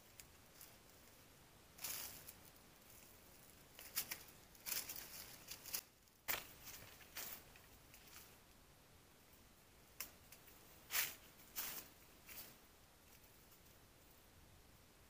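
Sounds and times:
rustling and crunching of dry leaves: 0.0 - 1.2, 1.8 - 8.4, 10.0 - 13.6.

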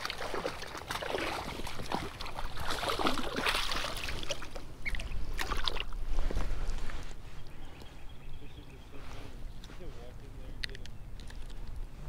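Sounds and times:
fish splashing at water surface: 0.0 - 6.0.

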